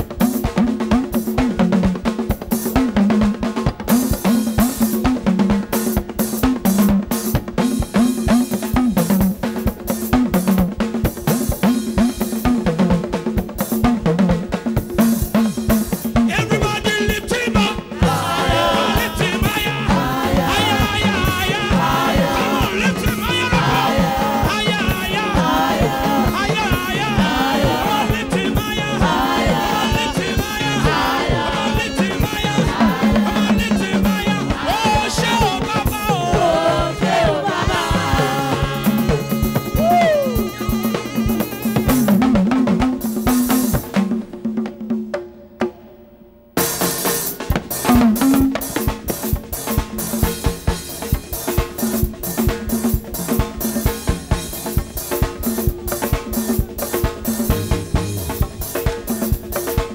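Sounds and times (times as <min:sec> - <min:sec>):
congas and drum kit: 0:00.0 - 0:59.9
live band playing: 0:00.0 - 0:59.9
electric bass guitar line: 0:17.8 - 0:32.8, 0:57.0 - 0:59.9
wavering melody line: 0:57.4 - 0:59.4.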